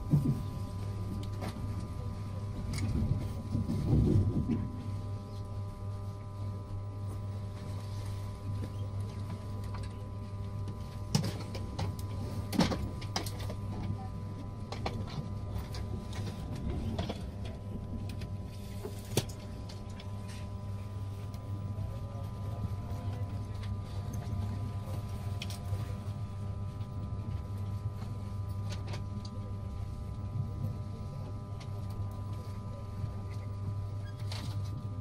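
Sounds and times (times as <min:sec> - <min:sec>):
train carriage low hum: 0:00.0 - 0:35.0.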